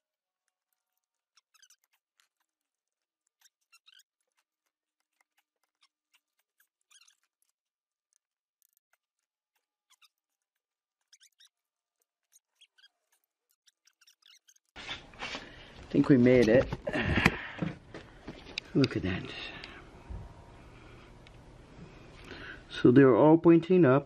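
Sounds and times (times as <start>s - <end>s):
ratchet clicks and squeaks: 0.4s - 15.0s.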